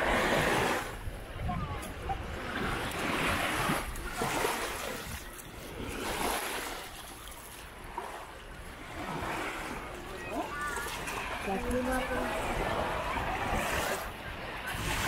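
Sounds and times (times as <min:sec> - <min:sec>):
sea waves breaking on beach: 0:00.0 - 0:15.0.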